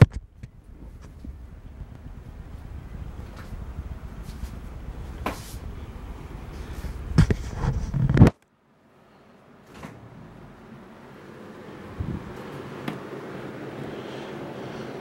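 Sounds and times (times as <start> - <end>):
handling rumble of camera: 0.0 - 8.4, 11.8 - 13.4.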